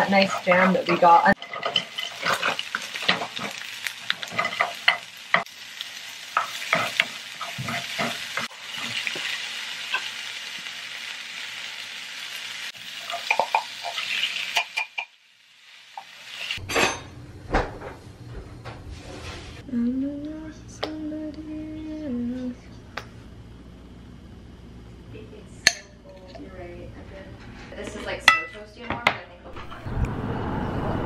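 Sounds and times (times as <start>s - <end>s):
spatula scraping a pan: 0.0s - 5.5s, 6.3s - 10.1s
vegetables sizzling in a frying pan: 0.0s - 16.6s.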